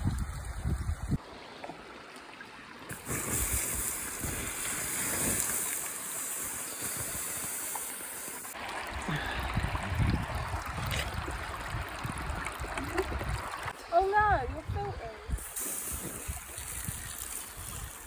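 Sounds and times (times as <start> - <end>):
shallow stream running: 0.0 - 18.0
loud hiss of steam: 2.9 - 8.6, 15.4 - 16.3.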